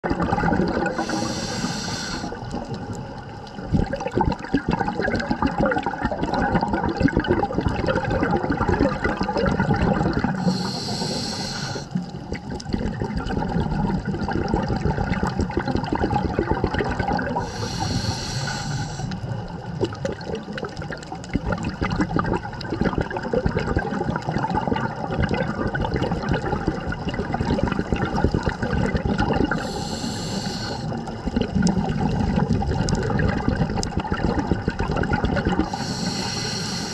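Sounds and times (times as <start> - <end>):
exhaled air bubbling: 0.0 - 36.9
regulator hiss on inhale: 0.9 - 2.8, 10.4 - 12.3, 17.4 - 19.4, 29.5 - 31.1, 35.6 - 36.9.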